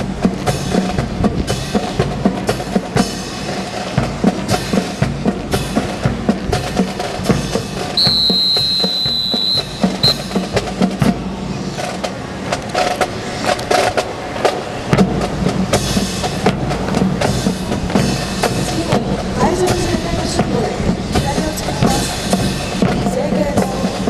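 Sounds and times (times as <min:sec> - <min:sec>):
whistle blasts: 0:08.0 - 0:10.6.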